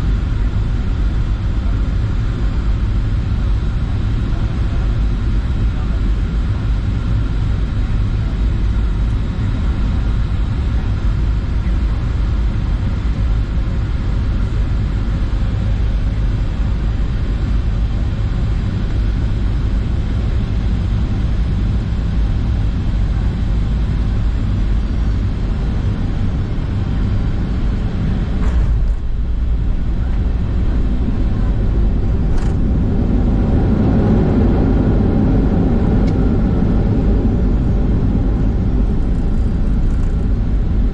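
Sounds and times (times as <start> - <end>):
airplane cabin engine rumble: 0.0 - 40.9.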